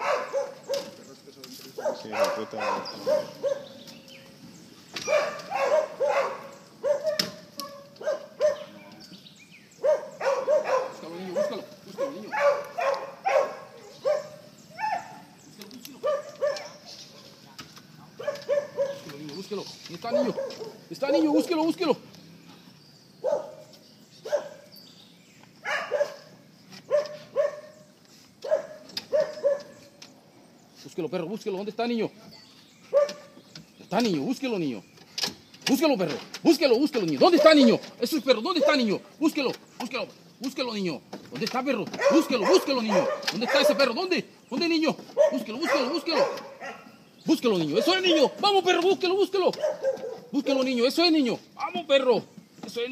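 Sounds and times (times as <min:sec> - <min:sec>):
dog barking: 0:00.0 - 0:01.0, 0:01.7 - 0:03.8, 0:05.0 - 0:08.8, 0:09.8 - 0:15.3, 0:16.0 - 0:19.1, 0:20.1 - 0:21.5, 0:23.2 - 0:24.7, 0:25.6 - 0:29.9, 0:32.9 - 0:33.4, 0:37.3 - 0:37.8, 0:38.6 - 0:38.9, 0:41.9 - 0:44.0, 0:45.2 - 0:47.0, 0:47.7 - 0:48.4, 0:49.5 - 0:50.4.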